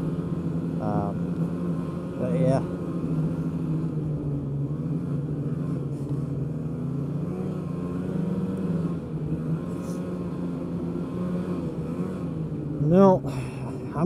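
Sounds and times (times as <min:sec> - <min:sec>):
snowmobile engine running: 0:00.0 - 0:14.0.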